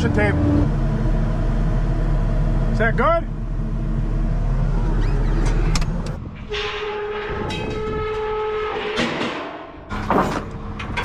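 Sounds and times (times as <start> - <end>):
horn long steady note: 0.0 - 4.4
engine low rumble: 0.0 - 7.7, 9.8 - 11.0.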